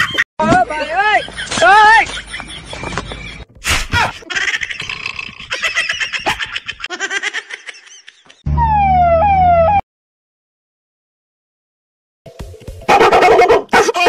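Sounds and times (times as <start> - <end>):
loud tone sliding down in pitch: 8.5 - 9.8.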